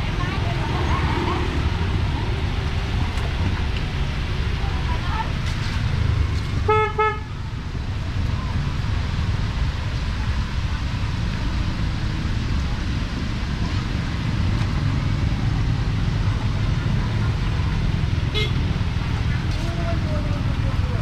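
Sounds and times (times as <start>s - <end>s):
passing vehicles rumble: 0.0s - 21.0s.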